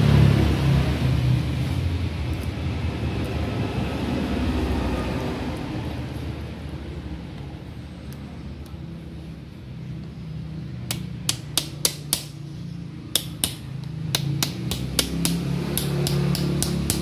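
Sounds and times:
hammer tapping metal: 10.9 - 12.4, 13.1 - 17.0.

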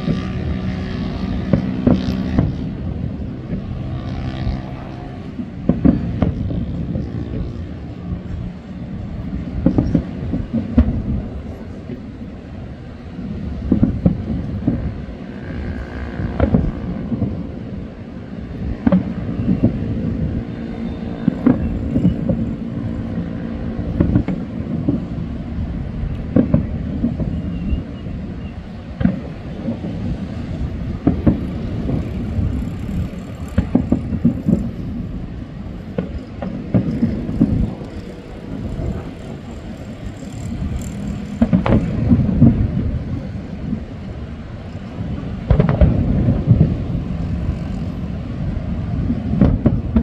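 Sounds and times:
distant fireworks booming: 0.0 - 50.0
low rumble: 0.0 - 50.0.

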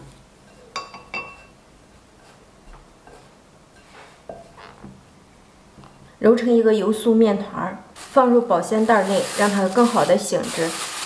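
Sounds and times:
light clinks against ceramic bowl: 0.5 - 1.5
hands kneading dough in bowl: 8.0 - 11.0.

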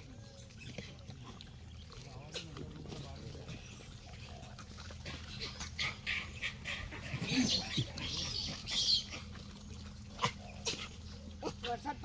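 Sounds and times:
monkeys squealing: 5.1 - 9.4.

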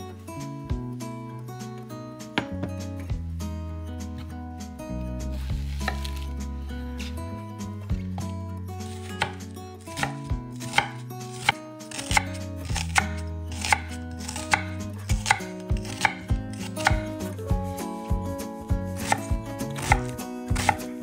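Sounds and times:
background music with held notes: 0.0 - 21.0
knife chopping on cutting board: 5.6 - 6.3, 8.9 - 17.3, 19.0 - 21.0.

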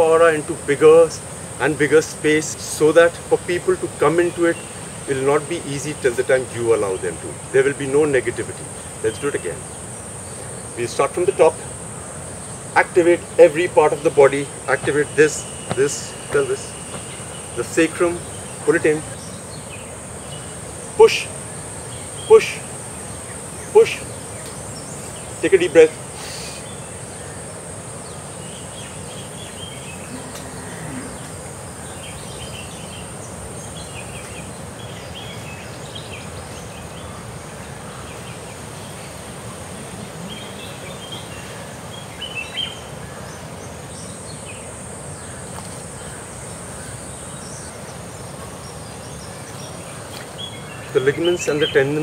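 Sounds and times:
high-pitched insect drone: 0.0 - 49.8
outdoor background hum: 0.0 - 52.0
bird chirps: 12.5 - 39.2.

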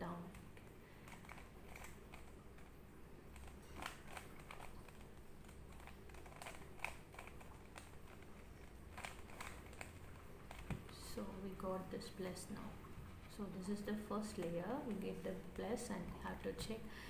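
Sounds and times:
puzzle cube clicking: 1.0 - 2.7, 3.3 - 11.0.

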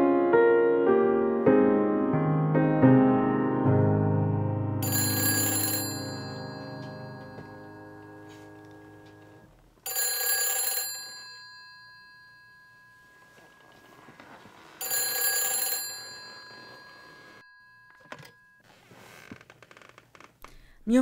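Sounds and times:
telephone ringing: 4.8 - 18.7.

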